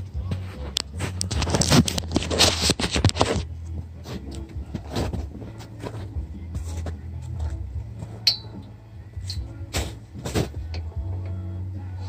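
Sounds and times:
steady low hum: 0:00.0 - 0:12.0
scraping and rustling: 0:00.2 - 0:08.2, 0:09.7 - 0:10.7.

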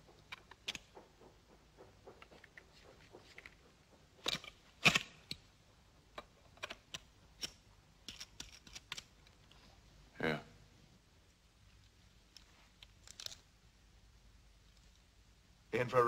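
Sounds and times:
rifle parts clicking and clacking: 0:00.1 - 0:05.5, 0:06.1 - 0:09.4.

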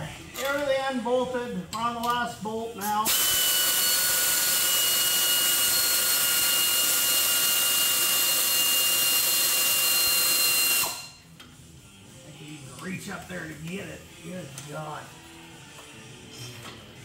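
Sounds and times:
pneumatic wrench whining: 0:03.0 - 0:11.2.

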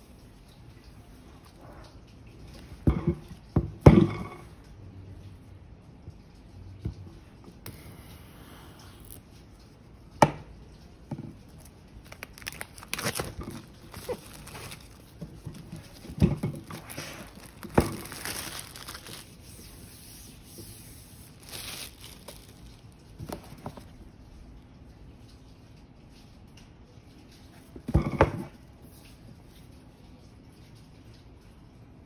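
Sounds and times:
plastic wrap crinkling and tearing: 0:11.4 - 0:24.0.

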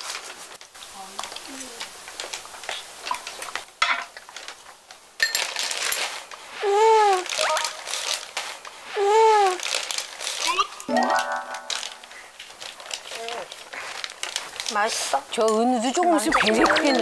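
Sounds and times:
rising and falling tones: 0:16.0 - 0:17.0.

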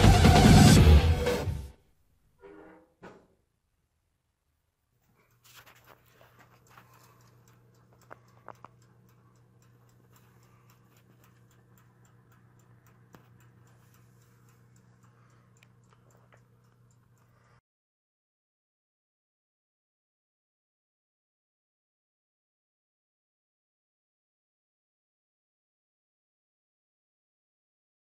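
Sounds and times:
mechanical timer ticking: 0:05.2 - 0:17.6
toaster oven humming: 0:05.2 - 0:17.6.

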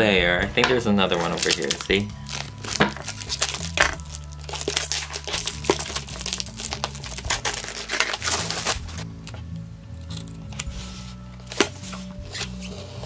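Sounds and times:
plastic bag crinkling: 0:01.1 - 0:09.0.

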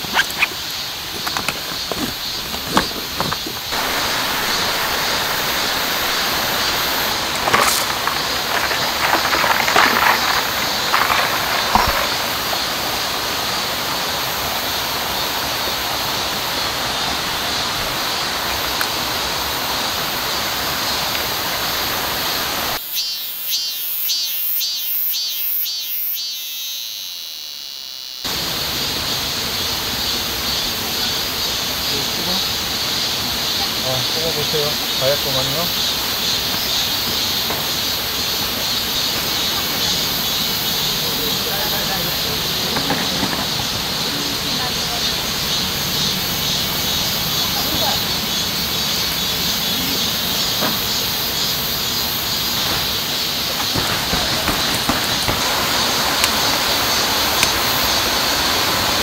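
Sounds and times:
camping gear clicks: 0:00.0 - 0:03.9
running water rushing: 0:00.0 - 0:22.8, 0:52.2 - 0:59.0
rhythmic insect chirping: 0:00.0 - 0:59.0.

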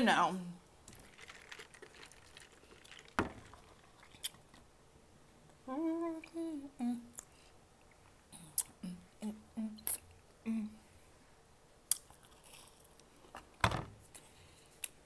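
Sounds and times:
woman humming mmm: 0:05.6 - 0:07.2, 0:08.3 - 0:10.8.

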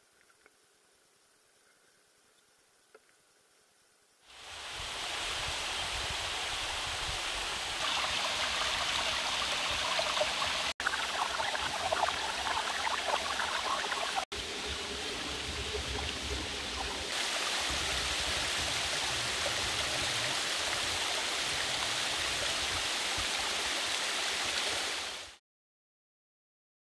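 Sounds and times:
stream trickling over stones: 0:04.3 - 0:25.2.

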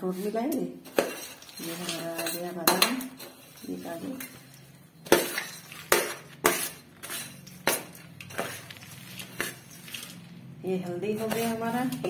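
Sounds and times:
metal spoon clinking on steel bowl: 0:01.0 - 0:08.6.

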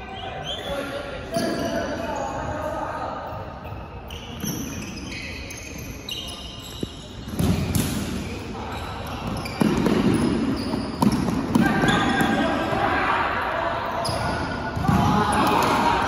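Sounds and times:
players shouting: 0:11.5 - 0:16.0.

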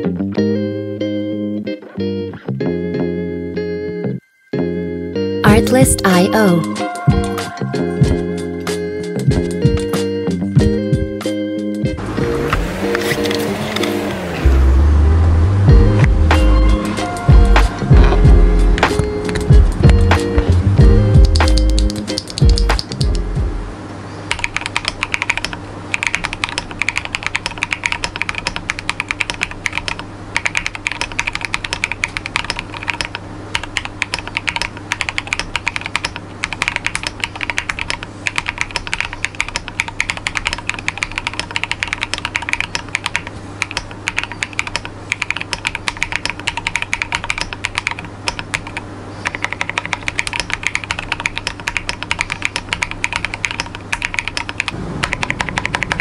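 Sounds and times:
mechanical keyboard typing: 0:21.2 - 0:23.2, 0:24.3 - 0:56.0.

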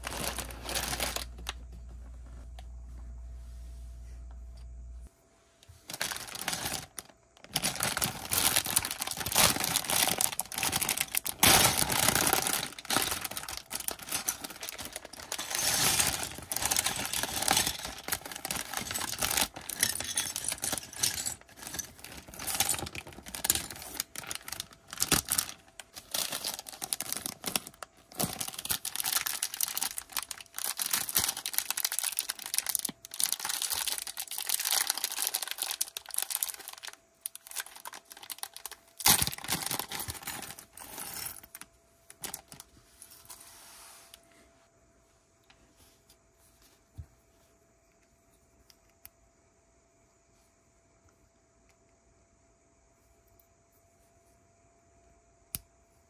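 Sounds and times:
plastic bags crinkling: 0:00.0 - 0:01.7, 0:05.8 - 0:42.7
plastic pieces clicking and rattling: 0:06.0 - 0:41.6.

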